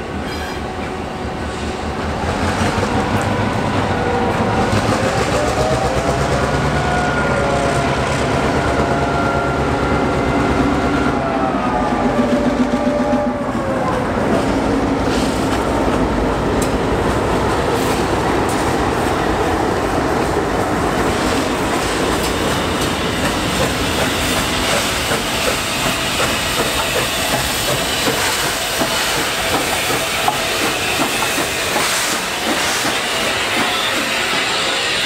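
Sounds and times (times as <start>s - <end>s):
train wheels clicking over rail joints: 19.9s - 35.0s
steam locomotive hiss: 20.7s - 35.0s.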